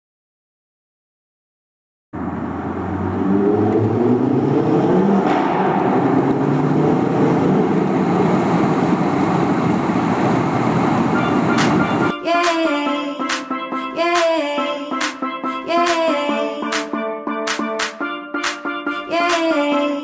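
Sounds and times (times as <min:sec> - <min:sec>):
car engine in tunnel: 0:02.2 - 0:12.1
road noise: 0:02.2 - 0:12.1
rushing wind: 0:04.0 - 0:12.1.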